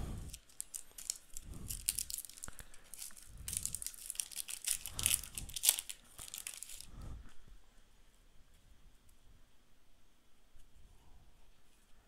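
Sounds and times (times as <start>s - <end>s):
plastic wrapper crinkling and tearing: 0.1s - 7.0s.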